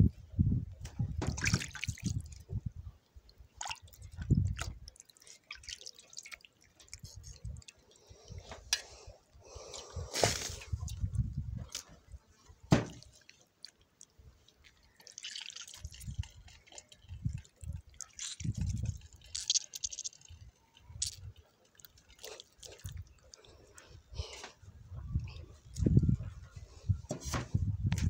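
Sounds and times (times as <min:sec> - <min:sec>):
water dripping and splashing in bowl: 0:01.2 - 0:02.5, 0:03.5 - 0:08.2, 0:12.8 - 0:23.6
wet squelches: 0:01.2 - 0:02.6, 0:03.2 - 0:11.1, 0:11.7 - 0:26.0.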